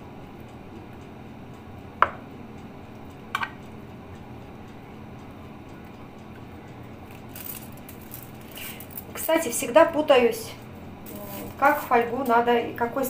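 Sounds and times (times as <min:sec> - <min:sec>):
faint steady background noise: 0:00.0 - 0:13.0.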